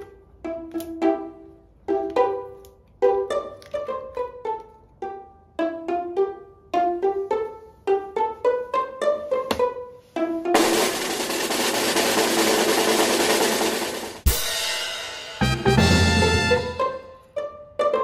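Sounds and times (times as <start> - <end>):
pizzicato strings music: 0.0 - 14.0, 15.4 - 18.0
drum roll: 10.6 - 17.0.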